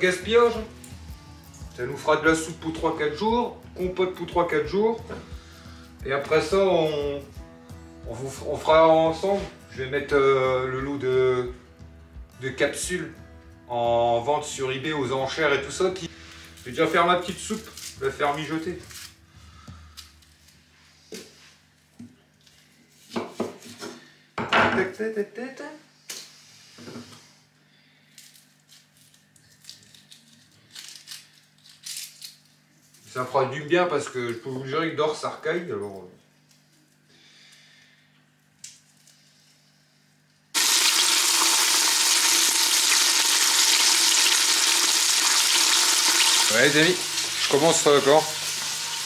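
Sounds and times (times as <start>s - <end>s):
vegetables sizzling in hot fat: 40.6s - 49.0s.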